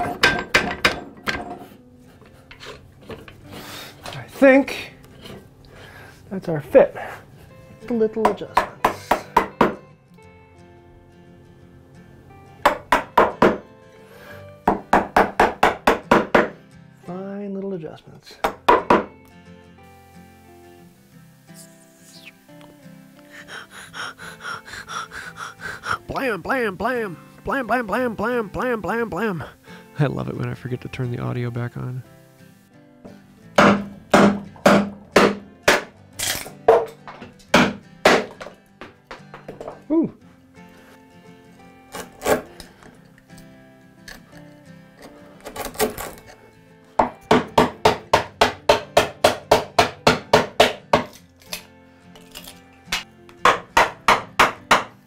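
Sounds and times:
background music: 0.0s - 55.0s
mallet striking chisel into wood: 8.2s - 9.8s, 12.6s - 13.6s, 14.6s - 16.6s, 18.4s - 19.1s, 33.6s - 35.9s, 37.5s - 38.6s, 47.0s - 51.2s, 53.4s - 55.0s.

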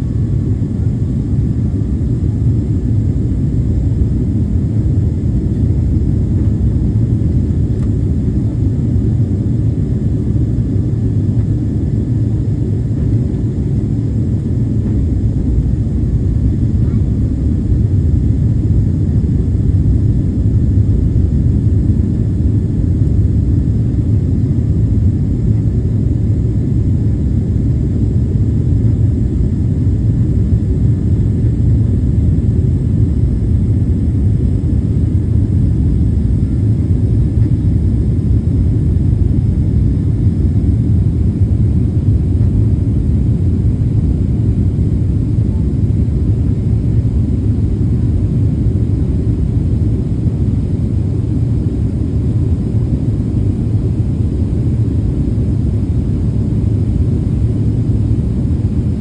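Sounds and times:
jet airliner cabin rumble: 0.0s - 59.0s.

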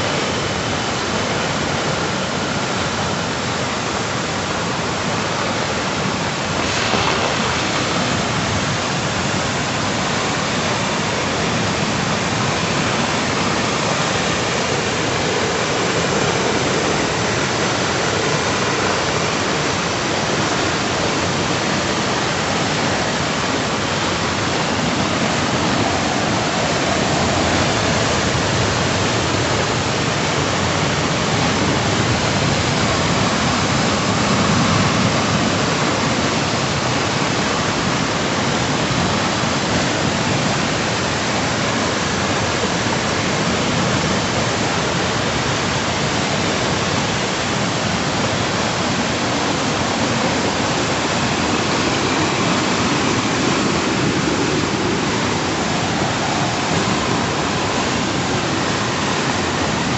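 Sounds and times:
river water rushing: 0.0s - 59.9s.

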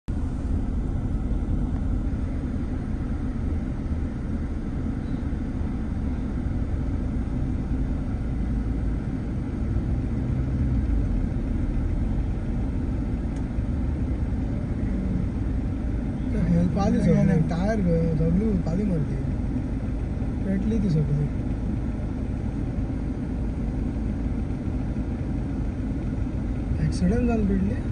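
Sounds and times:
fire engine idling: 0.1s - 10.2s
vehicle engines rumbling: 0.1s - 27.9s.

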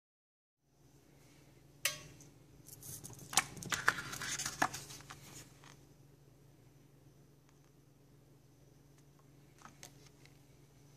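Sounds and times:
steady low hum: 0.6s - 10.9s
paper rustling: 2.7s - 5.8s.

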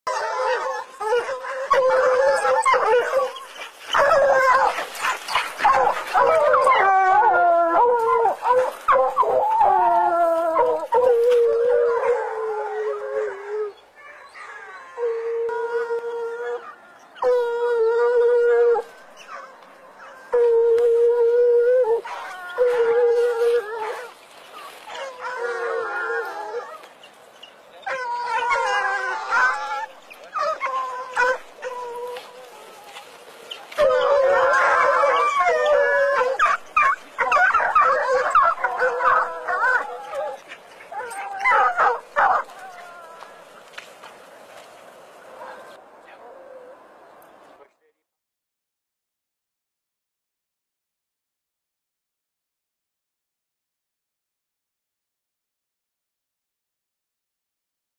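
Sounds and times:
hounds baying: 0.1s - 15.8s, 16.4s - 46.9s.

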